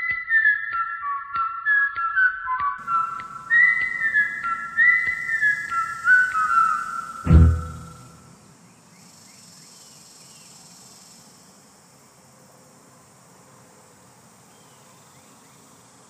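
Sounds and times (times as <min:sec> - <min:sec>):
small high chirps: 0:02.8 - 0:08.2
insects chirring: 0:02.8 - 0:16.0.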